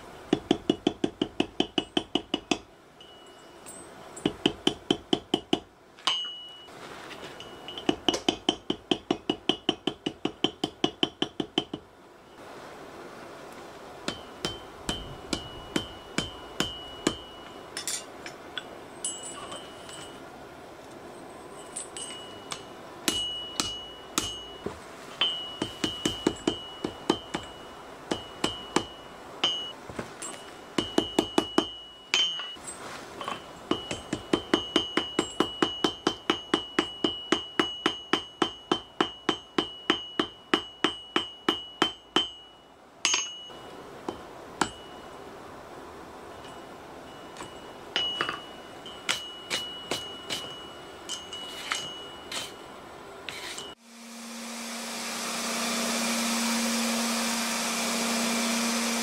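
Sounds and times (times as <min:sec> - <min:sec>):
hammer striking metal on anvil: 0:07.7 - 0:11.8, 0:14.1 - 0:20.0, 0:21.8 - 0:32.6, 0:33.7 - 0:44.9, 0:47.4 - 0:52.6
anvil ringing: 0:21.6 - 0:32.6, 0:33.7 - 0:43.6, 0:47.4 - 0:52.8.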